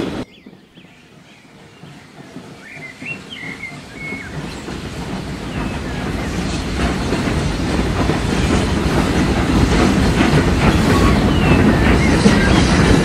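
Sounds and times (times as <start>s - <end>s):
steam train approaching: 0.0s - 13.0s
wheels clattering over rail joints: 3.4s - 13.0s.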